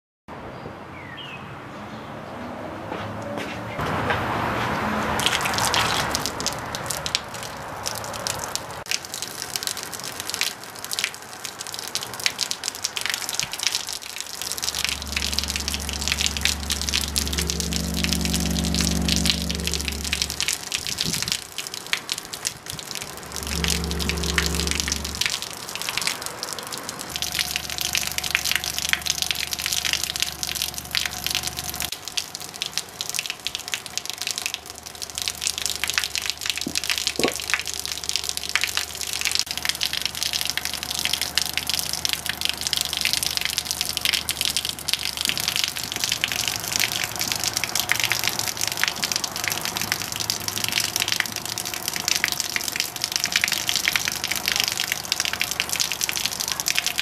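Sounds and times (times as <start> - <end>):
hose water splashing on ground: 3.8 - 57.0
low subwoofer hum: 14.5 - 21.4, 23.0 - 25.4, 27.2 - 31.9.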